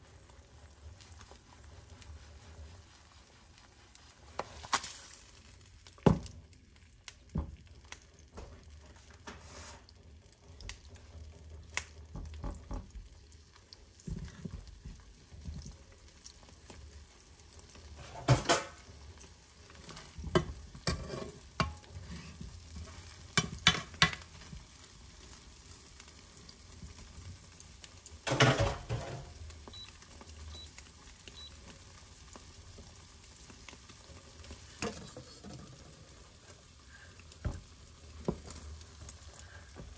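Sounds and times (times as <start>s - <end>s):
faint sizzle: 0.0s - 39.9s
utensils scraping cookware: 20.0s - 24.2s.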